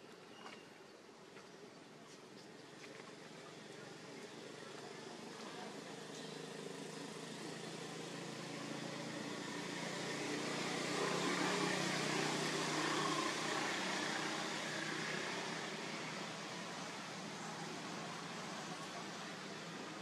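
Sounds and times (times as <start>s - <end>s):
motor vehicle passing: 6.4s - 20.0s.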